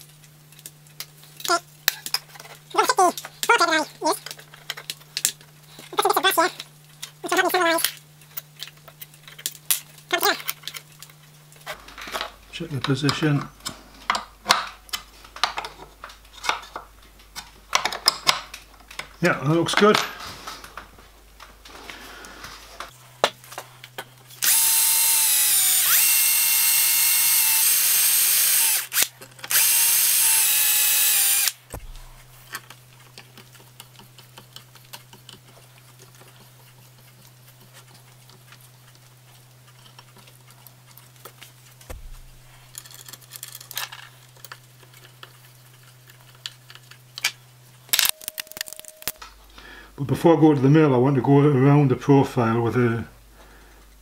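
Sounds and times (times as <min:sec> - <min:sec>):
cordless drill whining: 0:24.4 - 0:31.6
tools clicking and tapping: 0:32.5 - 0:39.0.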